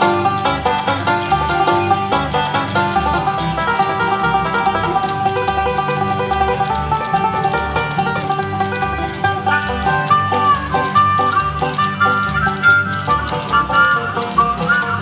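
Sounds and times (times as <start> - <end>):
banjo picking: 0.0 - 15.0
long held high notes: 0.0 - 15.0
strummed acoustic guitar: 0.0 - 15.0
upright bass notes: 0.0 - 15.0.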